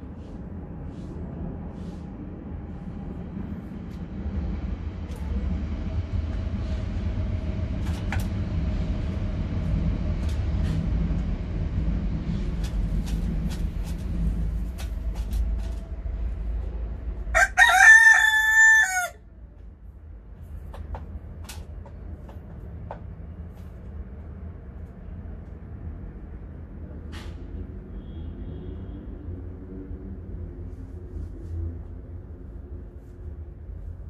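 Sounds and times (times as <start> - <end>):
low rumble: 0.0 - 17.4
rooster crowing: 17.3 - 19.3.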